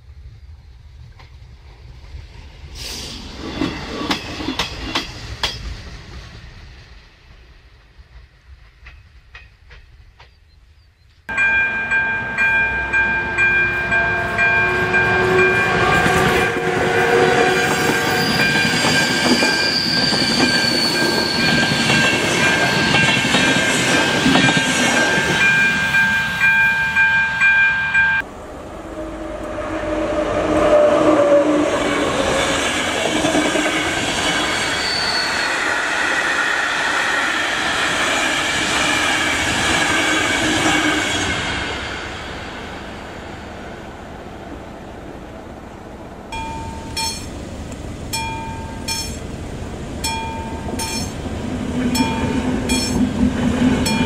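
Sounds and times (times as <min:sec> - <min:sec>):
train wheel clatter and rumble: 0:00.0 - 0:10.6, 0:13.9 - 0:26.8, 0:31.6 - 0:35.0, 0:35.9 - 0:42.6, 0:46.3 - 0:54.0
level crossing warning signal: 0:11.3 - 0:19.8, 0:25.1 - 0:28.2, 0:46.3 - 0:49.3, 0:50.0 - 0:51.2.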